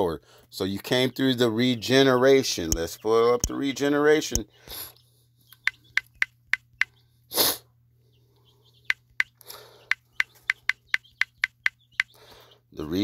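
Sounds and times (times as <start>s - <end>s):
burst of breath noise: 7.3s - 7.7s, 9.4s - 9.9s, 12.1s - 12.6s
phone keyboard clicks: 8.9s - 12.1s.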